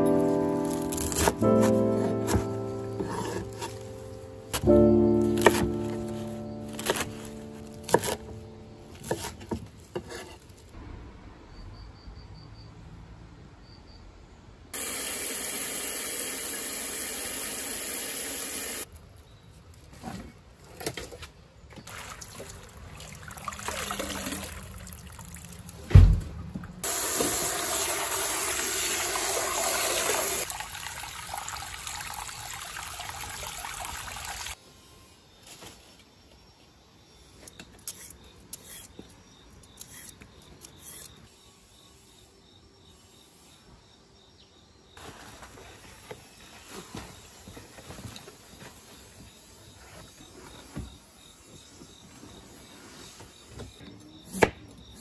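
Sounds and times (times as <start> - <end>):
loud thump: 25.9 - 26.6
tap water pouring into steel basin: 26.9 - 34.6.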